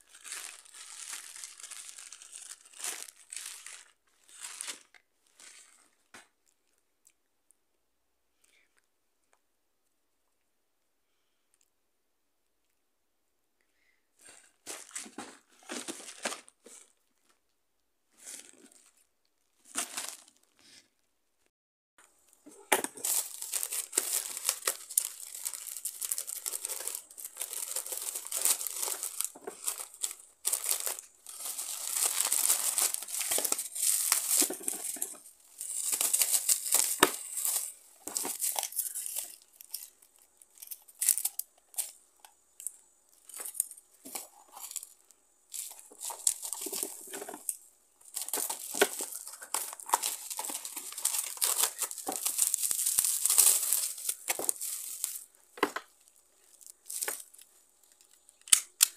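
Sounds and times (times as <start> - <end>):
plastic packaging crinkling: 0.0 - 5.8, 14.3 - 17.4, 19.6 - 20.5, 22.2 - 58.9.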